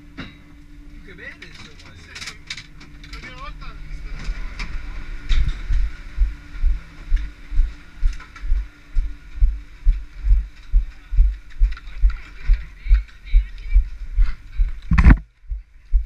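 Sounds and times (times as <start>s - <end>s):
footsteps walking: 5.3s - 16.0s.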